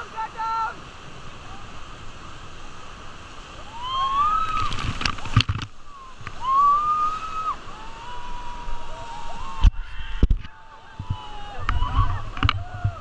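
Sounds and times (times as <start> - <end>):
whitewater rushing and splashing: 0.0 - 13.0
people whooping: 3.6 - 4.8, 5.9 - 13.0.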